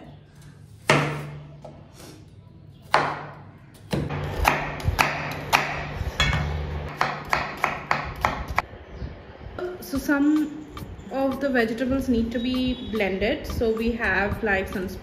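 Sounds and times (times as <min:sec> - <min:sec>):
knife chopping on cutting board: 0:02.9 - 0:08.6.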